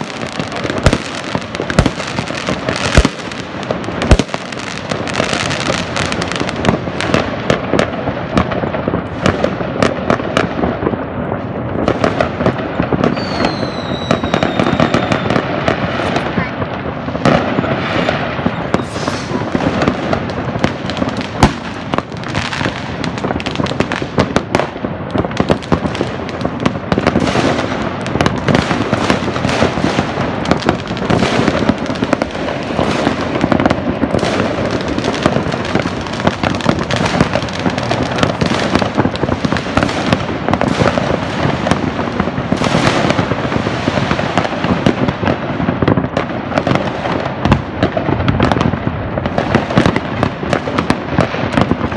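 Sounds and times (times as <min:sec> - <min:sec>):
fireworks crackling and banging: 0:00.0 - 0:51.9
sharp firework bang: 0:17.2 - 0:22.6.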